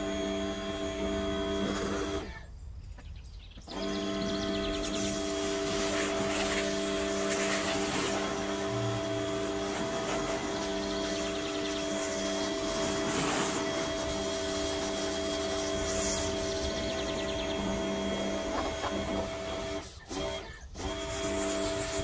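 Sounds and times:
pressure washer motor hum: 0.0s - 2.4s, 3.6s - 22.0s
water jet hissing: 4.8s - 17.2s.

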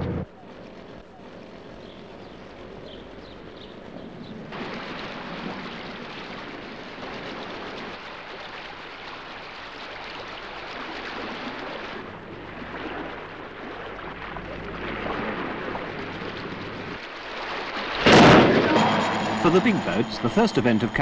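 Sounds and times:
wind: 0.0s - 21.0s
sea water rushing: 4.5s - 21.0s.

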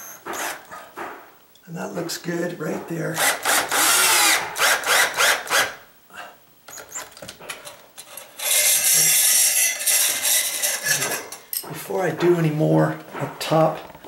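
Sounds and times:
cordless drill driving screws: 0.3s - 0.6s, 3.2s - 5.8s.

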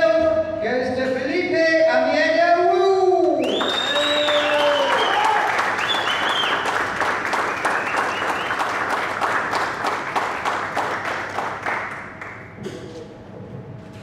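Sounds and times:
audience applauding: 3.4s - 12.5s.

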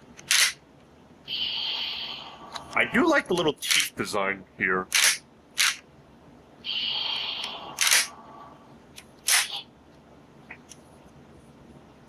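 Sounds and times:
toy gun plastic clicks: 0.2s - 0.6s.

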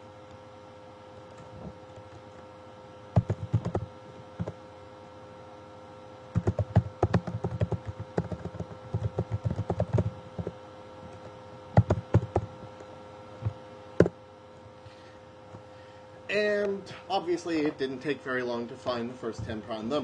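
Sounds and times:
typing on computer keyboard: 3.2s - 4.6s, 6.4s - 10.6s, 11.8s - 12.5s.

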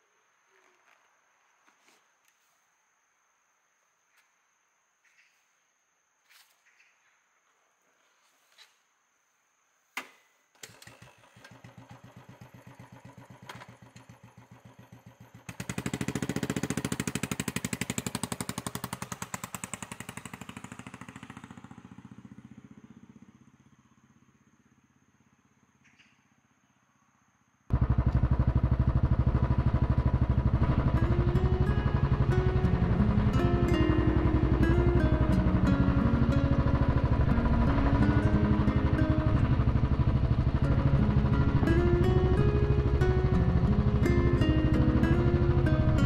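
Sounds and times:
motorcycle engine: 10.6s - 25.5s, 27.7s - 46.0s.

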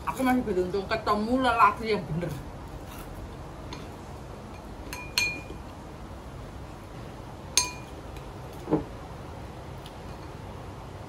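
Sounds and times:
utensil clinking against a dish: 3.7s - 5.6s, 7.6s - 8.3s.

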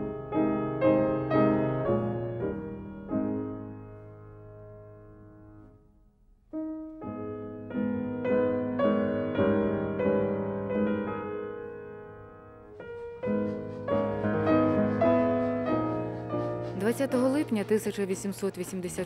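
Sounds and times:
solo piano music: 0.0s - 19.0s.

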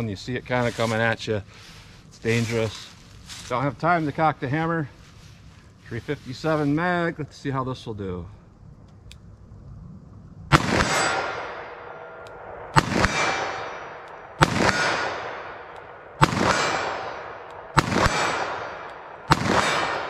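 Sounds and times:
revolver gunshots echoing: 10.5s - 20.0s.

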